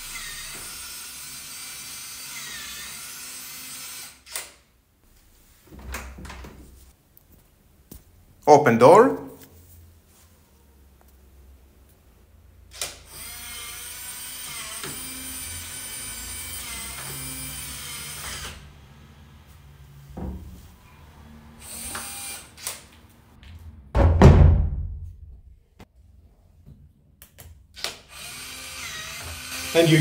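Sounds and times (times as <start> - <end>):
lock motor whirring: 21.6 - 22.9
heavy thump: 23.8 - 25.6.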